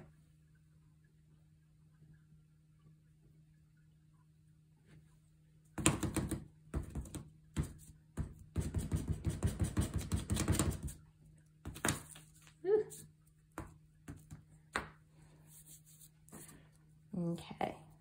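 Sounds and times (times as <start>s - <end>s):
sponge dabbing glue on paper: 5.8s - 16.6s.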